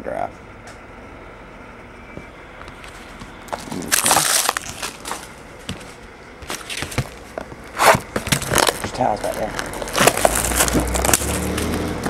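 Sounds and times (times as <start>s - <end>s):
plastic packaging crinkling: 2.7s - 11.9s.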